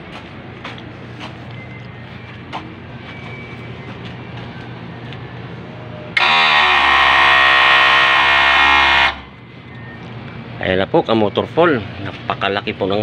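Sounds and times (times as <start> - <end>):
hydraulic pump whine: 1.6 - 10.2.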